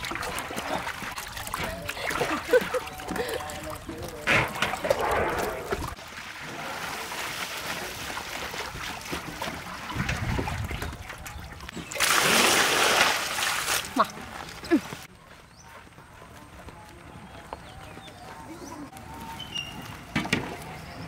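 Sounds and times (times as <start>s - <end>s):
water splashing in a metal basin: 0.0s - 14.2s.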